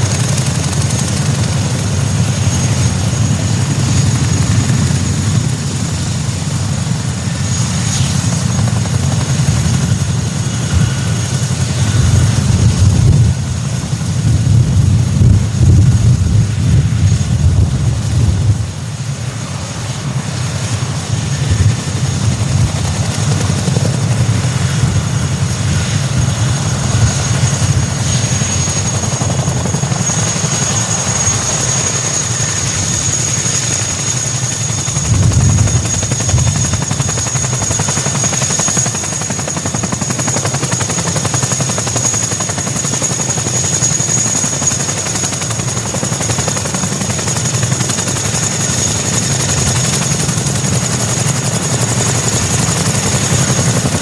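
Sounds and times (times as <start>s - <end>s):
helicopter deep rumble: 0.0s - 54.0s
high steady whine: 24.3s - 41.7s.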